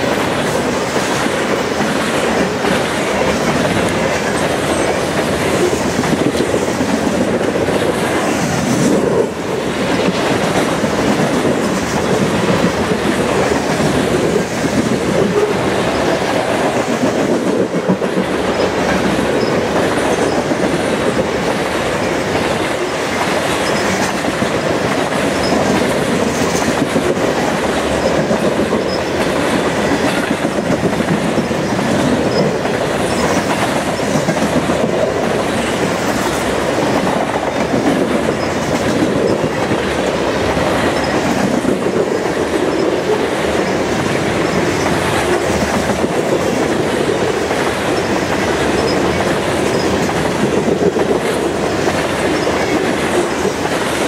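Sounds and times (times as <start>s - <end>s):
freight train wheels rumbling: 0.0s - 54.0s
wheels clickety-clack over rail: 0.0s - 54.0s.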